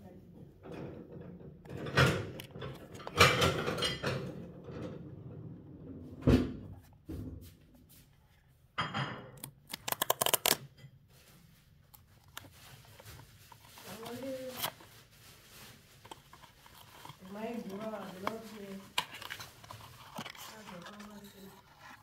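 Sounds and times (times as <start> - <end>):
cardboard rustling and scraping: 9.7 - 22.0
cardboard tearing crackle: 12.0 - 22.0.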